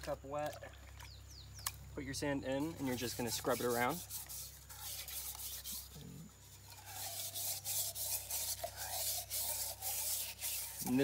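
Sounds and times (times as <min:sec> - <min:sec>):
sand scrubbing inside metal cup: 0:02.5 - 0:11.0.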